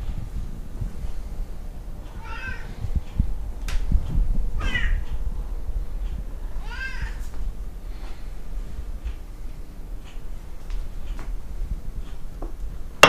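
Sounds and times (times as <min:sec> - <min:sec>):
cat meowing: 0:02.2 - 0:02.7, 0:04.6 - 0:05.0, 0:06.6 - 0:07.2.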